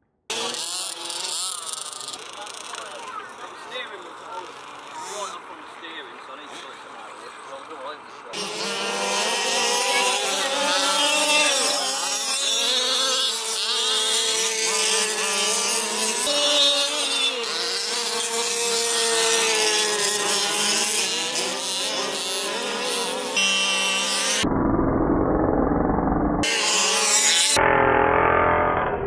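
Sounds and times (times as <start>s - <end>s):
small engines buzzing and revving: 0.2s - 24.5s, 26.4s - 29.0s.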